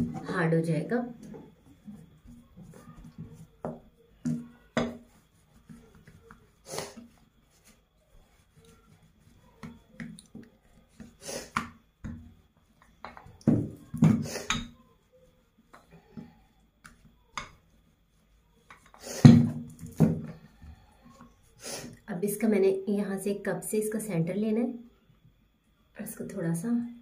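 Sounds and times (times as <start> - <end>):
rolling pin knocking on board: 3.6 - 5.1.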